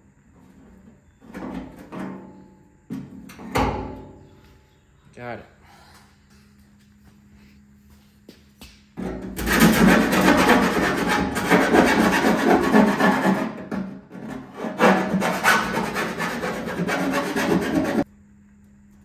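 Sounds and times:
hand file rasping on metal: 9.4 - 13.6, 14.3 - 18.1.

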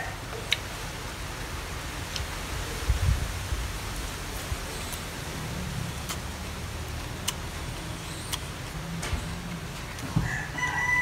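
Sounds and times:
man chewing crispy food: 4.4 - 11.0
mouth clicks and smacks: 6.0 - 8.8
rooster crowing: 10.2 - 11.0.

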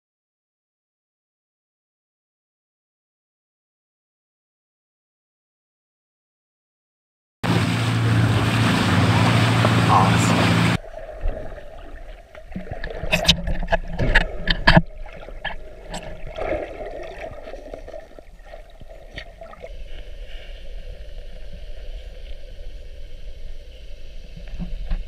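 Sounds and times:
water gurgling and lapping: 7.4 - 25.0
sharp clicks and knocks: 12.8 - 16.2.

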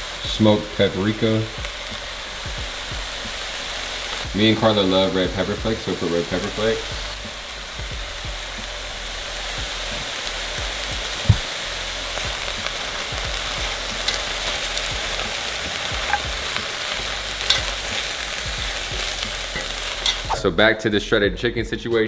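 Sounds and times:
vegetables sizzling in oil: 0.0 - 20.4
metal tongs knocking on pot: 17.4 - 17.9.

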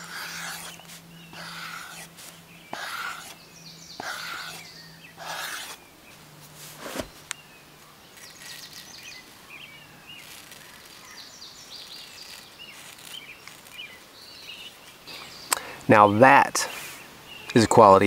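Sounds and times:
blade stroking a sharpener: 0.0 - 2.1, 2.7 - 3.4, 4.0 - 5.8, 10.2 - 13.9
blade shaving hair crackling: 0.0 - 5.8, 8.1 - 14.8.

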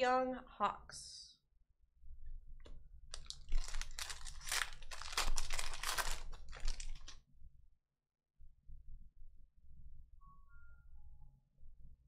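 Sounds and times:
foil wrapper tearing and crinkling: 3.1 - 7.2.

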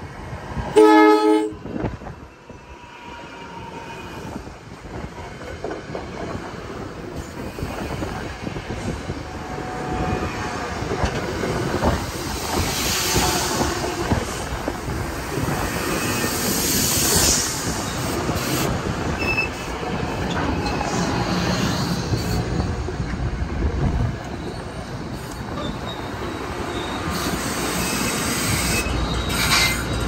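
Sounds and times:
train wheels rushing on rail: 0.0 - 30.0
wheel squeals: 24.3 - 30.0.

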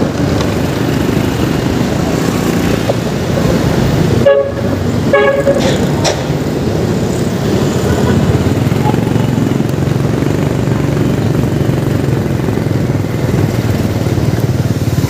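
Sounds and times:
scooter engine and road rumble: 0.0 - 15.0
vehicle horn toots: 4.2 - 5.9.

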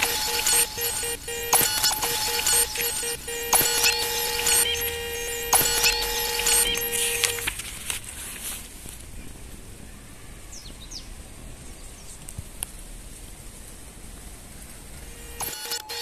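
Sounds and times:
faint outdoor background noise: 0.0 - 16.0.

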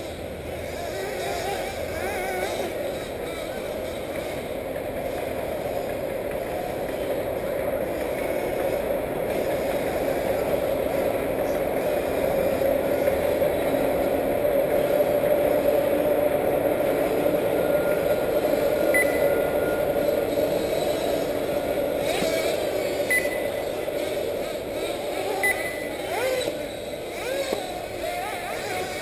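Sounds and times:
model buggy engines droning: 0.0 - 29.0
short high beeps: 18.9 - 20.0, 23.0 - 23.8, 25.4 - 26.5.

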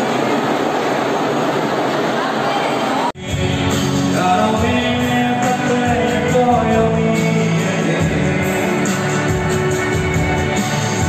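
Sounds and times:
man singing into a microphone: 3.2 - 9.9
loud instrumental backing: 3.2 - 11.0.

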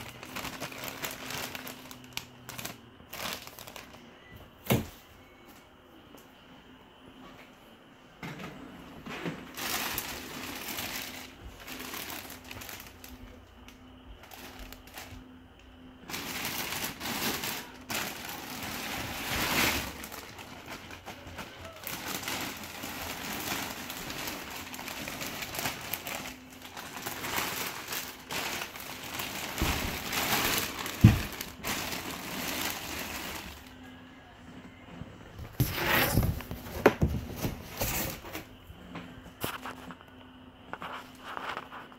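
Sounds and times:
plastic wrapping crinkling: 0.0 - 4.8, 9.4 - 33.8, 39.4 - 41.9.

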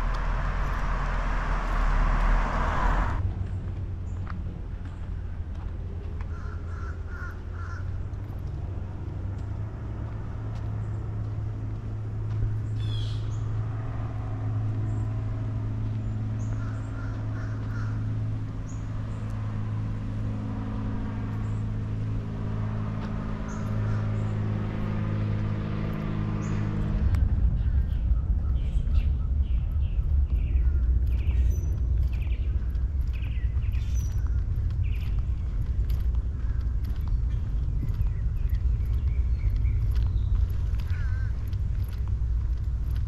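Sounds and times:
engine humming: 0.0 - 43.0.

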